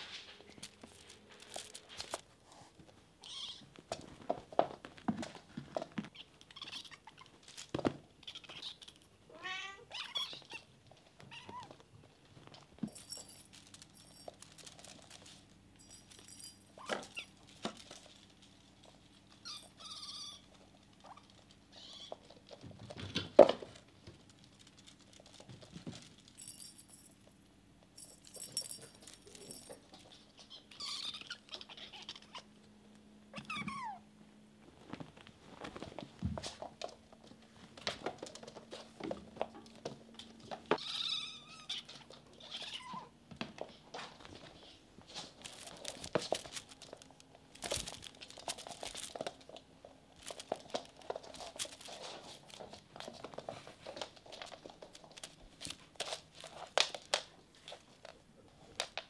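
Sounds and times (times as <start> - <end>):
small knocks and rustles: 0.0 - 3.0, 3.6 - 9.1, 10.2 - 27.4, 34.6 - 41.0, 41.8 - 59.0
faint steady hum: 0.0 - 59.0
kittens meowing and chirping: 6.1 - 7.3, 8.2 - 10.7, 19.4 - 22.2, 30.1 - 32.5, 33.4 - 34.0, 40.8 - 43.1.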